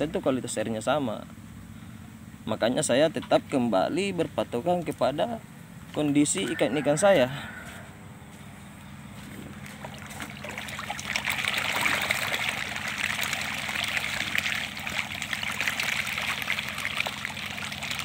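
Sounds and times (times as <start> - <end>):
fish splashing at water surface: 9.6 - 18.0.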